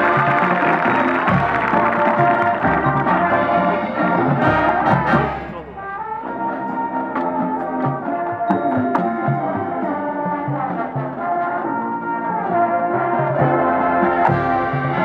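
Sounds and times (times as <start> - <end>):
low brass notes: 0.0 - 15.0
marching band playing: 0.0 - 15.0.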